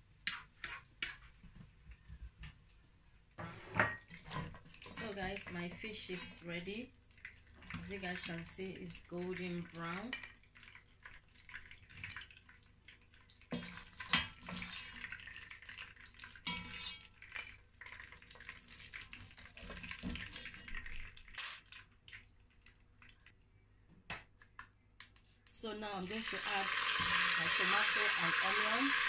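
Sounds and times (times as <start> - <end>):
hot oil crackling: 4.3 - 23.3, 26.0 - 29.0.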